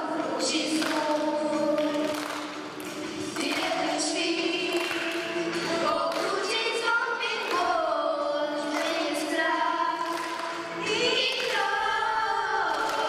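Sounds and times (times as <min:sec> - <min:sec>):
group of voices singing: 0:00.0 - 0:13.0.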